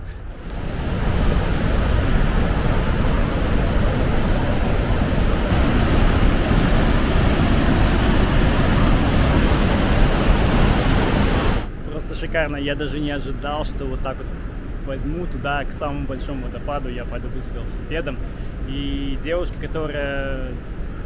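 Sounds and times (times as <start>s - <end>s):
waterfall roaring: 0.3s - 11.7s.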